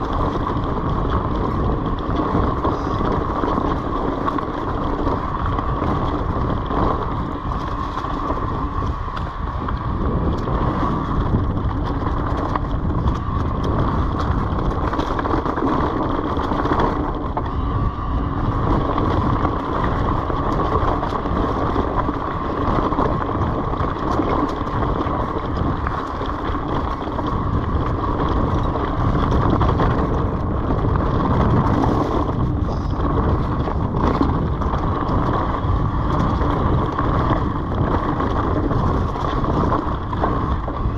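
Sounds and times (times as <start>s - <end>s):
bike jolts and rattles: 0.0s - 40.9s
bike tyre noise on dirt: 0.0s - 40.9s
wind on microphone: 0.0s - 40.9s
steady high tone: 17.4s - 18.5s.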